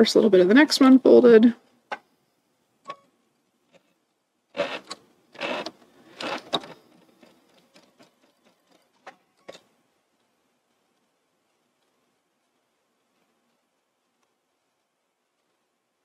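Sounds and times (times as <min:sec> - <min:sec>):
sewing machine stitching: 0:04.5 - 0:09.6.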